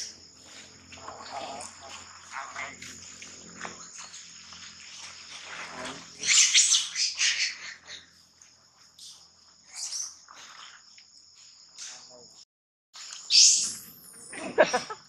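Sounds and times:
high insect drone: 0.0 - 12.4, 13.0 - 15.0
baby monkey screaming: 6.2 - 8.0.

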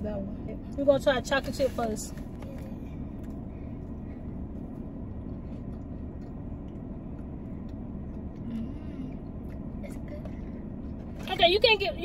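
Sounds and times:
car engine rumble inside cabin: 0.0 - 12.0
soft chewing: 2.4 - 11.1.

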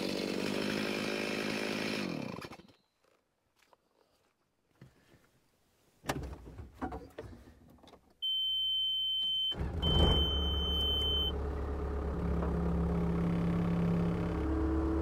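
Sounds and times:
engine starting and running: 0.0 - 2.8, 9.4 - 15.0
high electronic warning beep: 8.2 - 11.3.

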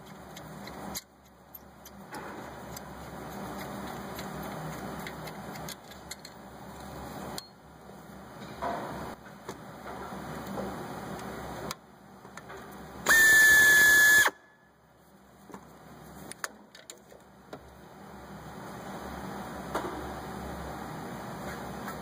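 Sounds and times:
power tool motor whining: 13.1 - 14.3.

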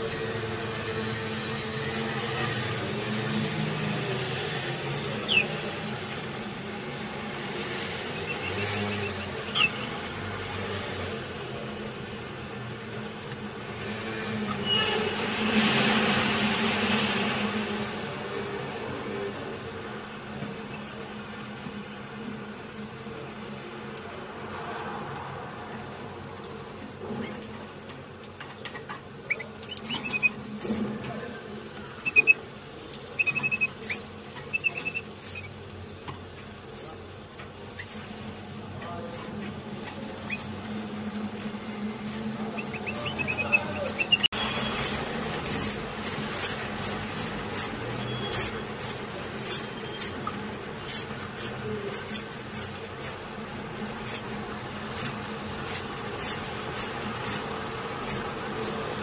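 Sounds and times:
nestlings cheeping: 0.0 - 18.1, 20.1 - 23.3, 26.4 - 59.0
canaries chirping: 0.0 - 59.0
faint peeps: 8.0 - 10.1, 28.7 - 59.0.

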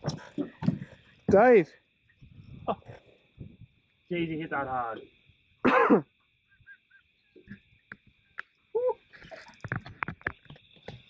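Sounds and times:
insects chirring: 0.0 - 11.0
person exclaiming: 8.8 - 9.0.

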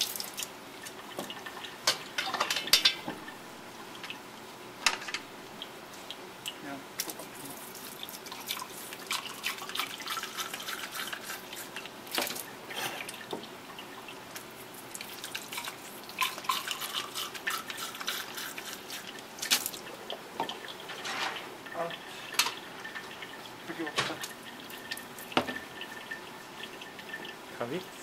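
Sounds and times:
water splashing and dripping: 0.0 - 4.4, 7.8 - 27.8
water pouring through funnel: 7.8 - 20.9.

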